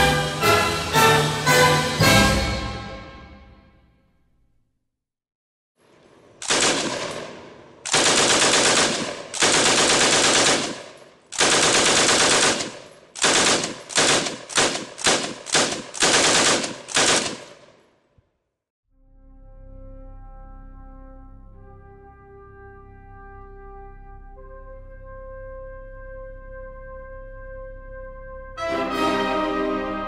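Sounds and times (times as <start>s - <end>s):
machine gun firing bursts: 6.4s - 17.8s.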